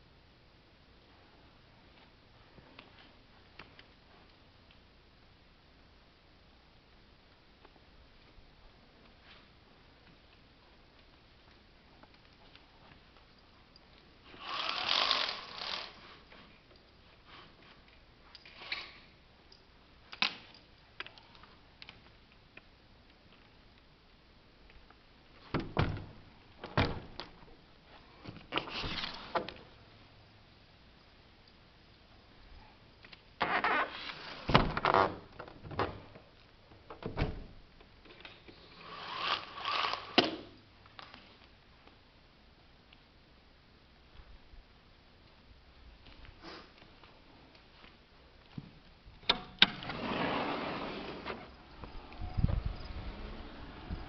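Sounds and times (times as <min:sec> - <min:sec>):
window sliding scrape: 0:33.4 - 0:34.6, 0:49.8 - 0:54.0.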